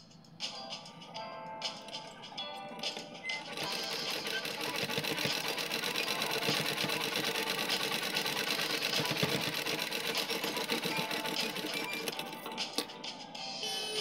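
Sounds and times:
sewing machine running: 3.4 - 12.9.

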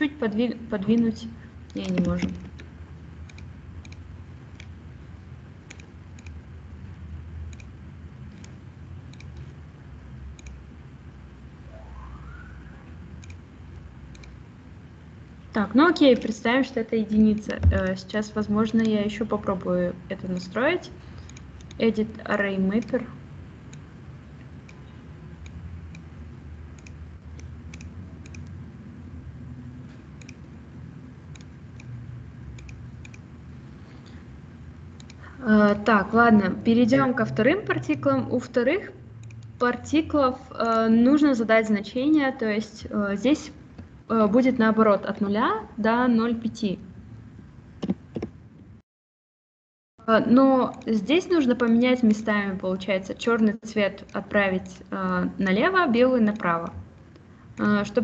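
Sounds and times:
steady low hum: 0.0 - 48.8, 50.0 - 58.0
computer mouse clicks: 0.9 - 4.8, 5.6 - 6.4, 7.5 - 9.6, 10.3 - 10.6, 13.2 - 14.4, 17.1 - 18.0, 18.8 - 19.0, 20.2 - 20.6, 21.2 - 21.8, 23.7 - 26.1, 26.7 - 28.6, 29.9 - 30.6, 31.3 - 33.3, 35.0 - 35.2, 39.2 - 39.5, 51.6 - 52.3
faint rising whine: 9.9 - 14.0.

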